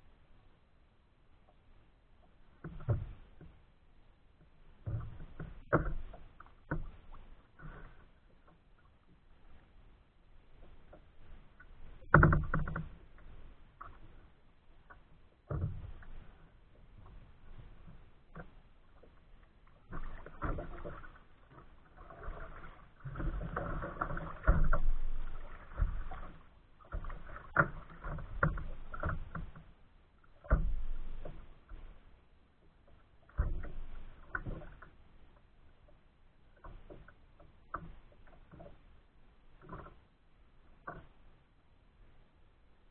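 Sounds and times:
water slapping against kayak hull: 0:04.8 - 0:09.2, 0:10.6 - 0:32.0, 0:32.7 - 0:35.0, 0:36.4 - 0:38.8.

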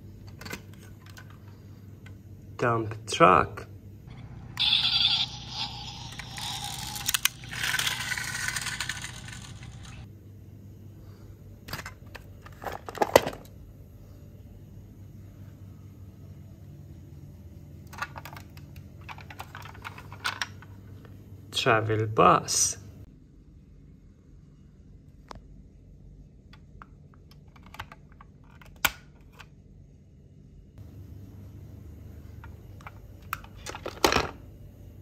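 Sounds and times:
toy wheels rolling on concrete: 0:04.6 - 0:10.1
plastic toys clicking: 0:06.0 - 0:10.0.

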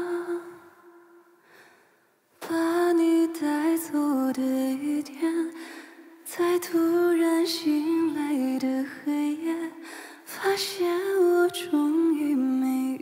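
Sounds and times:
woman singing slow melody: 0:00.0 - 0:01.4, 0:02.4 - 0:13.0
singer breathing: 0:01.4 - 0:02.2, 0:05.6 - 0:06.1, 0:09.8 - 0:10.3.

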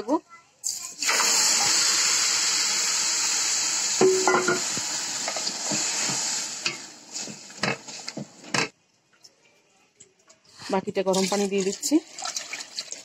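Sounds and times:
rice sizzling in a pot: 0:00.6 - 0:08.3.

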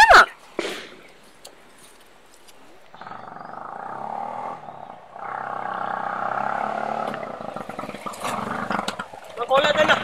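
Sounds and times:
auto-rickshaw engine putter: 0:03.0 - 0:10.0.

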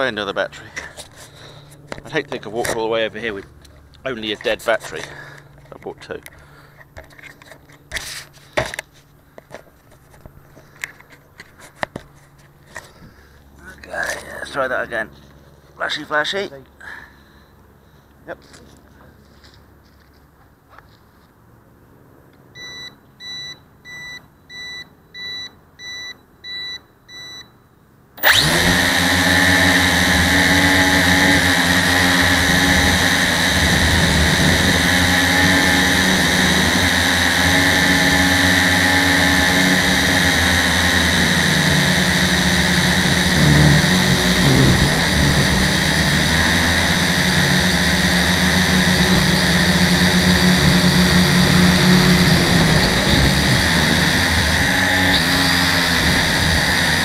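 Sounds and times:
short electronic beeps: 0:22.6 - 0:27.5
electric motors and propeller whir: 0:28.2 - 0:57.0.

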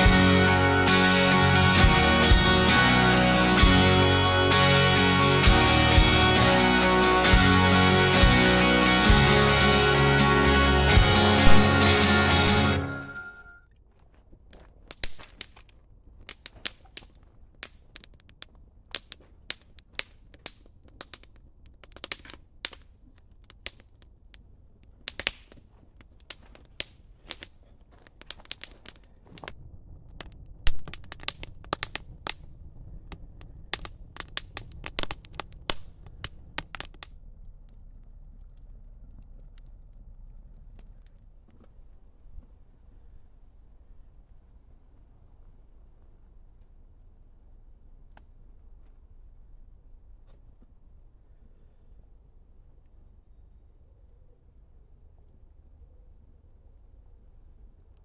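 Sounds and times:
wood fire crackling and popping: 0:00.0 - 0:13.0, 0:14.5 - 0:41.6
low rush of flame: 0:28.6 - 0:41.3.

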